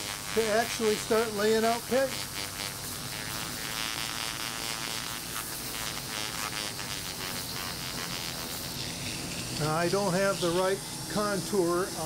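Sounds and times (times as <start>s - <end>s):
sandpaper hissing on wood: 0.0s - 9.0s, 9.6s - 10.8s.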